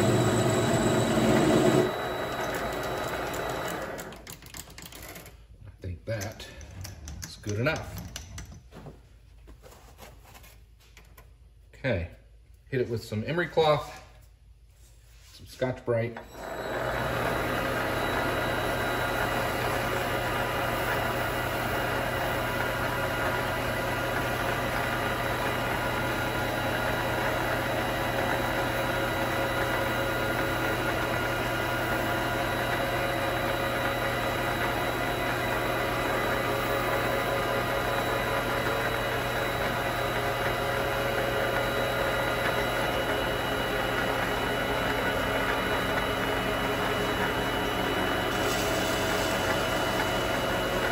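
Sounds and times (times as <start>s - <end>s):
lathe motor humming and whining: 0.0s - 4.1s, 16.2s - 50.9s.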